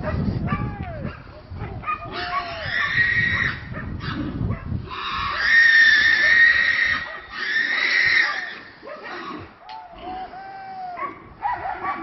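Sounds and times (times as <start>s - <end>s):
high-pitched animal cries: 2.1s - 4.3s, 4.9s - 11.1s.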